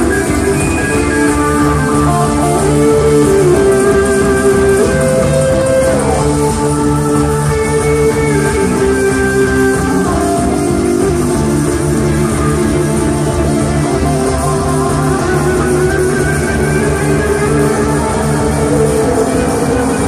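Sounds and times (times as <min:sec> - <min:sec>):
live band playing loud music: 0:00.0 - 0:20.0.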